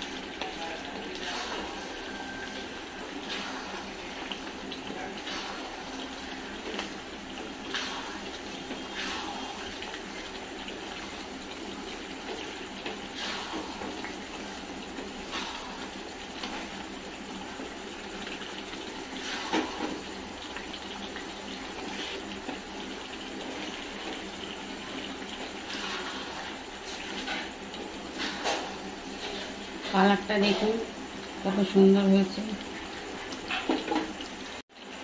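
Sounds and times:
meat curry sizzling in oil: 0:00.0 - 0:35.0
wooden spatula scraping a pan: 0:25.4 - 0:30.8.

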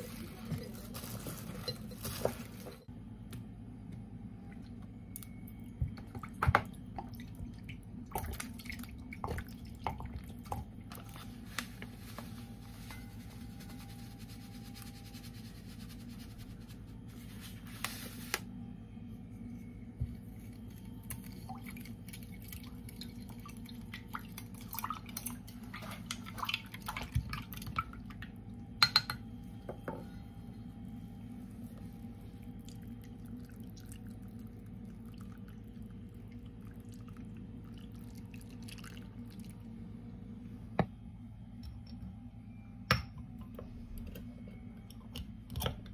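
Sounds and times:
low steady hum: 0:00.0 - 0:45.9
liquid pouring into glass jug: 0:32.6 - 0:39.6.

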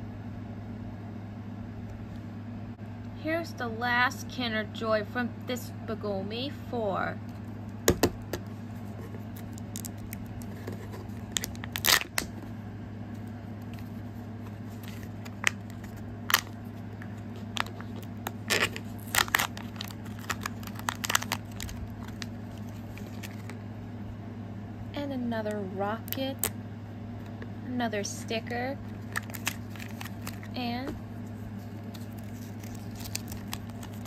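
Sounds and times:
wrapper tearing and crinkling: 0:09.2 - 0:12.4, 0:14.7 - 0:16.6, 0:17.2 - 0:23.6, 0:29.0 - 0:30.6, 0:31.8 - 0:34.0.

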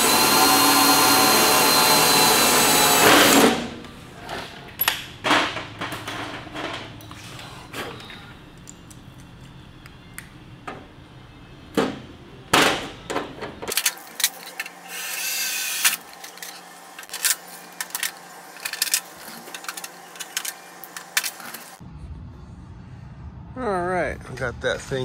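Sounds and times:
power drill boring a hole: 0:00.0 - 0:03.5.

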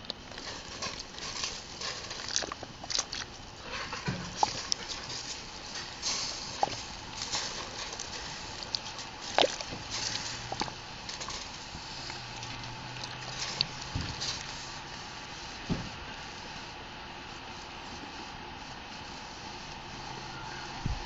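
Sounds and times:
wood fire crackling and popping: 0:00.0 - 0:16.5
meat simmering with sizzling hiss: 0:00.0 - 0:21.0.

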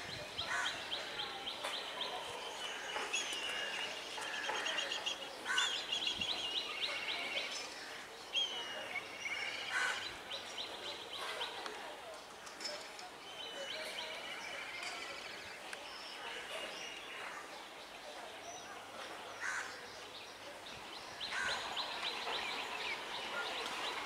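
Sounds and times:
birds chirping and trilling: 0:19.4 - 0:24.0.

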